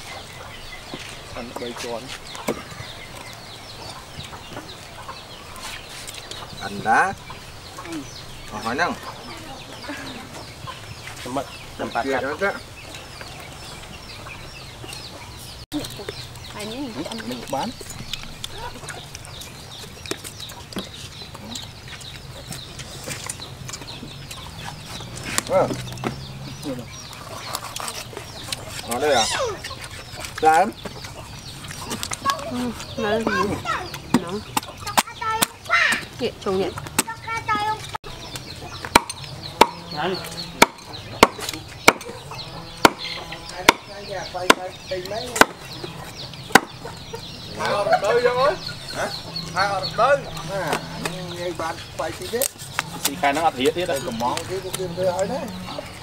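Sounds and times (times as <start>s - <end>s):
chickens clucking and cheeping: 0.0s - 56.0s
knife chopping on wooden board: 38.8s - 39.8s, 40.6s - 42.1s, 42.8s - 43.0s, 46.5s - 46.8s.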